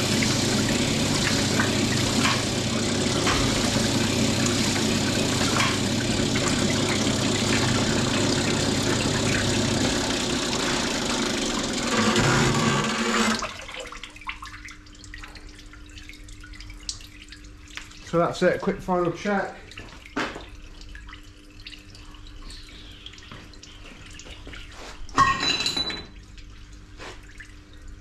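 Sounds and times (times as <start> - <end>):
oil splashing: 0.0 - 11.9
low motor hum: 0.0 - 13.4.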